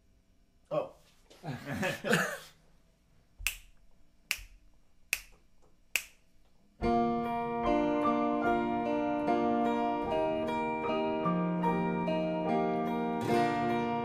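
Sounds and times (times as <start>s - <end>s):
finger snaps: 3.4s - 6.3s
acoustic guitar: 6.8s - 14.0s
sustained piano chords: 6.8s - 14.0s.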